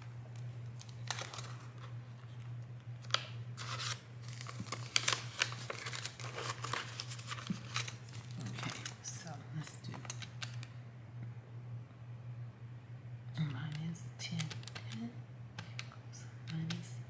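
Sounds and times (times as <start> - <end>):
plastic envelopes crinkling: 0.0 - 9.2
steady low hum: 0.0 - 17.0
banknotes rustling: 0.8 - 2.3, 3.6 - 9.2.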